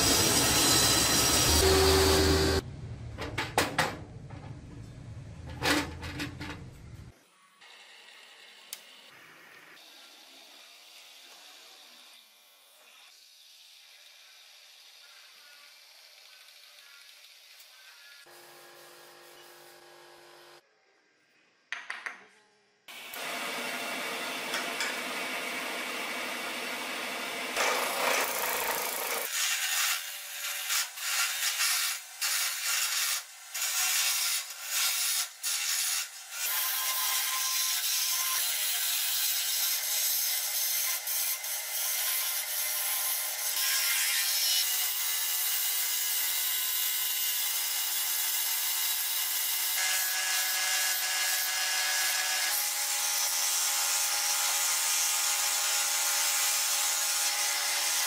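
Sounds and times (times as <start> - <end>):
chisel cutting wood: 23.1 - 36.6
wood lathe spinning: 23.2 - 29.5.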